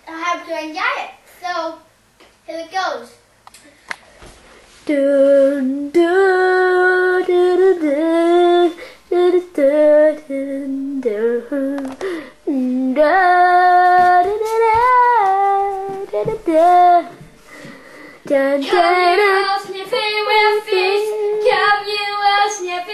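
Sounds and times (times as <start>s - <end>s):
child singing: 18.3s - 22.9s.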